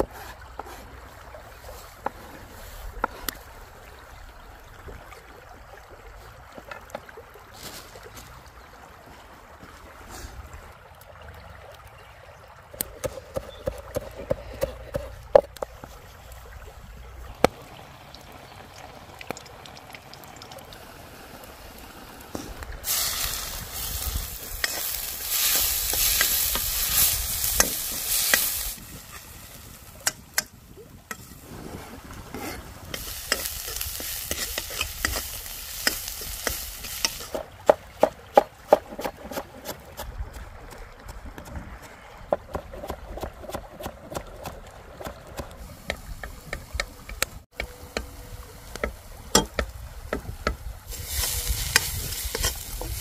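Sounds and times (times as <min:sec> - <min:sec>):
food sizzling in hot oil: 0:22.8 - 0:30.0, 0:32.9 - 0:37.4, 0:50.9 - 0:53.0.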